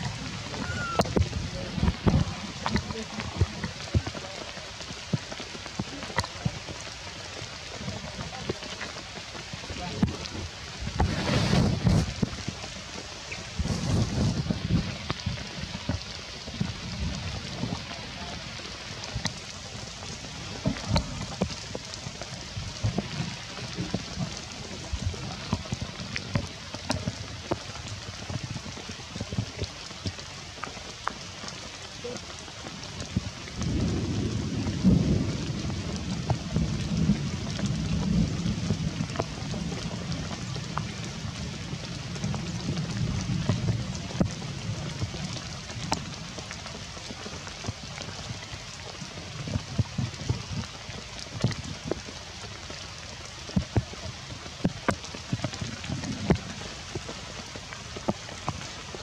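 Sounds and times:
deep low rumble: 0.0s - 4.6s, 5.8s - 28.6s
rain on foliage: 0.0s - 59.0s.

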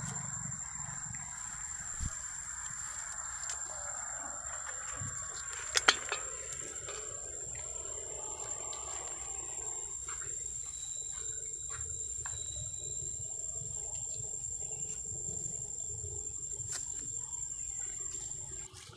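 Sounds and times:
low rumble: 0.0s - 9.7s
rustles: 0.0s - 10.6s
high-pitched whine: 0.0s - 16.4s.

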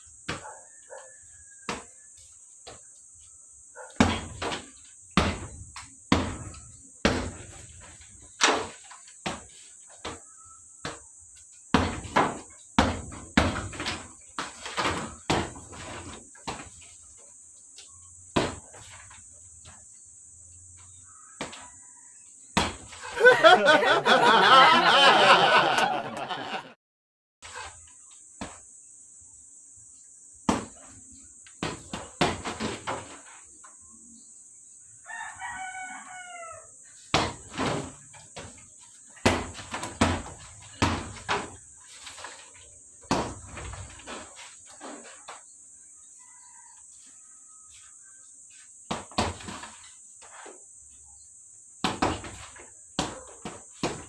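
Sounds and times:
rooster crowing: 0.6s - 2.2s, 23.0s - 26.7s, 35.0s - 36.8s, 46.1s - 48.2s
punches thudding on heavy bag: 4.0s - 7.6s, 11.7s - 14.1s, 39.2s - 41.6s.

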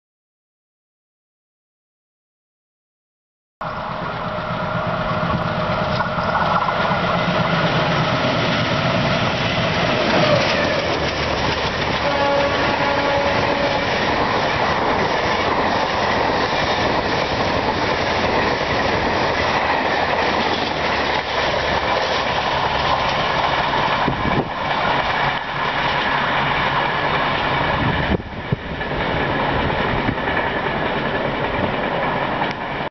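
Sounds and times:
diesel locomotive engine passing: 3.6s - 32.9s
coach wheels clacking over rail joints: 4.1s - 32.9s
train horn: 11.9s - 14.1s.

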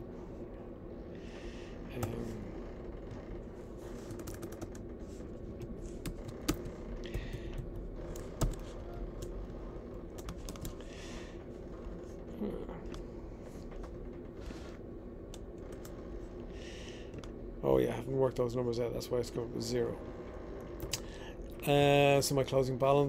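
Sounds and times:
faint steady hum: 0.0s - 23.0s
computer keyboard clicks: 4.1s - 4.8s, 6.0s - 9.3s, 10.2s - 10.8s.

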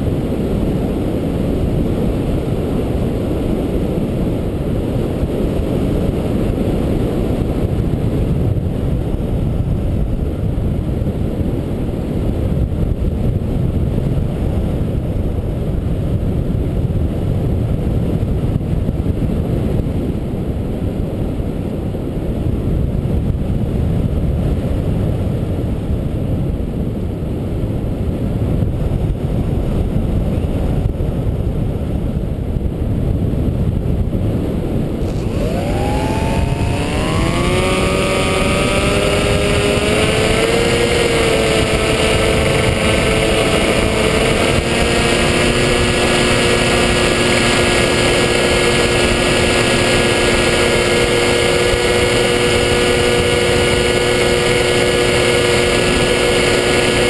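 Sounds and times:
airflow rushing over camera: 33.8s - 57.0s
electric motor whine: 34.9s - 57.0s.

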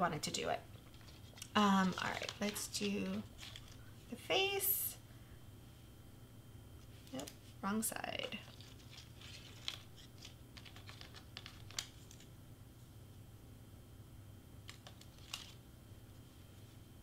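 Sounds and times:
cardstock clicks and rustles: 0.9s - 3.8s, 8.4s - 12.3s, 14.6s - 15.6s.

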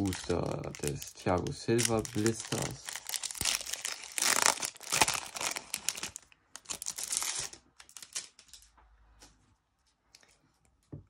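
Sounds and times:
foil wrapper tearing and crinkling: 0.0s - 8.4s.

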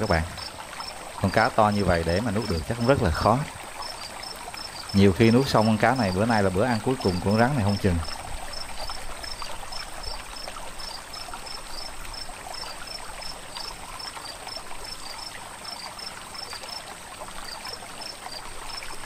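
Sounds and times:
insect chirping in high pulses: 0.0s - 16.8s
water trickling with splashes: 0.0s - 19.0s.

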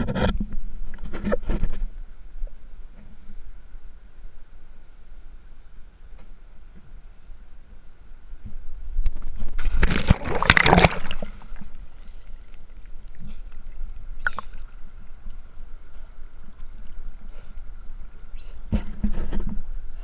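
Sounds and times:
water sloshing and lapping: 9.4s - 18.2s
loud splash into water: 9.6s - 11.6s.

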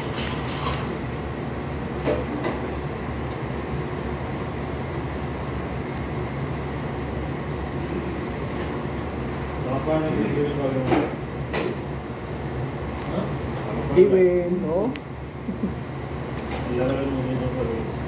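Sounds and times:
low machine hum: 0.0s - 18.0s
flatbread being torn: 12.1s - 14.0s.

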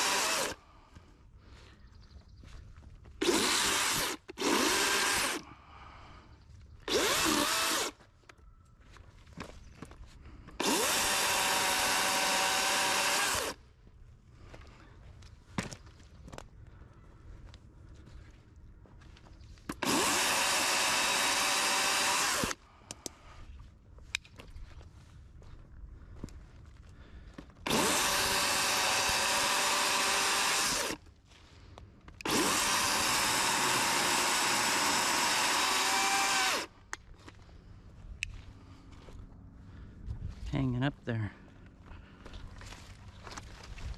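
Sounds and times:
electric chainsaw running: 0.0s - 0.6s, 3.2s - 5.4s, 6.9s - 8.0s, 10.6s - 13.6s, 19.7s - 22.6s, 27.6s - 31.0s, 32.2s - 36.8s.

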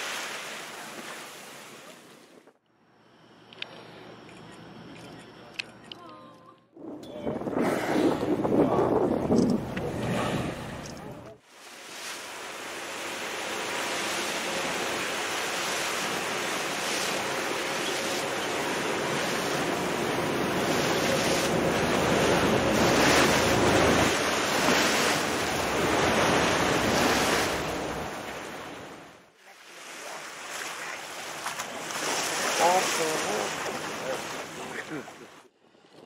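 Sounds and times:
sea water rushing and splashing: 0.0s - 2.4s, 6.8s - 35.4s
wind buffeting microphone: 6.8s - 11.2s.

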